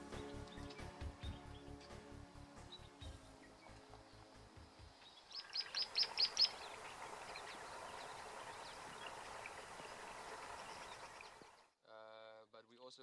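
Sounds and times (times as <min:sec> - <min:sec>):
steady outdoor hiss: 0:00.0 - 0:13.0
bird calling high notes: 0:05.1 - 0:09.2.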